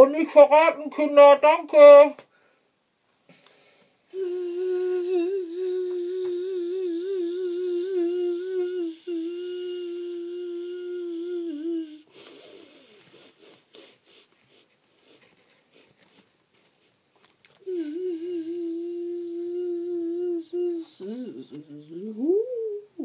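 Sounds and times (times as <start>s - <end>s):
person humming a buzzing note: 4.1s - 12.3s, 17.6s - 23.0s
faint rustling: 12.9s - 17.7s.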